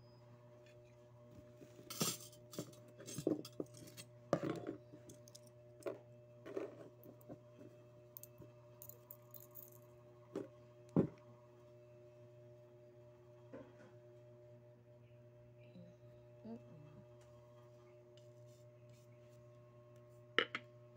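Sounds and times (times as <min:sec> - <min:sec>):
faint steady hum: 0:00.0 - 0:20.9
small metal pieces clinking: 0:08.8 - 0:09.8.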